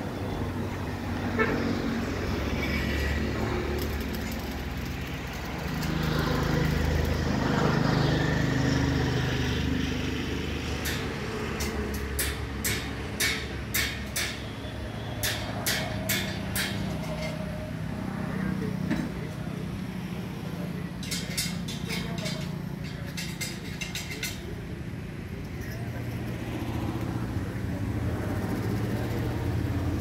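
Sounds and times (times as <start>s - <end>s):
low engine rumble: 0.0s - 30.0s.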